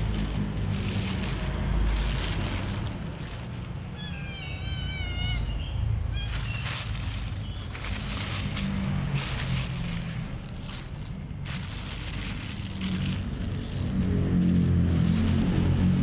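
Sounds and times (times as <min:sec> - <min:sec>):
plastic bag crinkling: 0:00.0 - 0:05.4, 0:06.1 - 0:16.0
cat meowing: 0:03.8 - 0:07.2.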